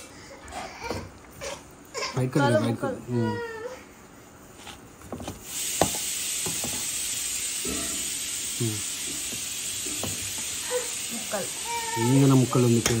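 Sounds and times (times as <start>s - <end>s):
steady hiss: 5.2s - 13.0s.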